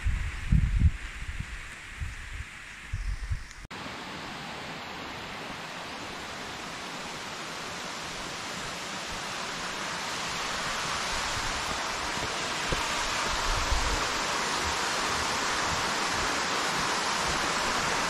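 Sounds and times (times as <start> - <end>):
wind rumble on microphone: 0.0 - 3.7, 11.0 - 18.0
steady rushing hiss: 0.0 - 18.0.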